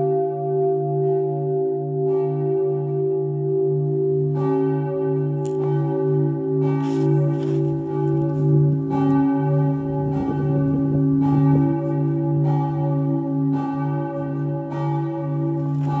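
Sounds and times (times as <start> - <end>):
deep church bells striking: 0.0 - 16.0.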